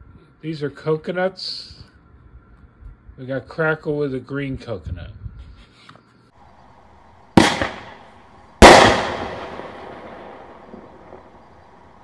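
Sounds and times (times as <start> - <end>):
firework launch bang: 7.4 - 8.0, 8.6 - 11.3
firework burst: 7.4 - 12.0
firework crackling: 7.4 - 12.0.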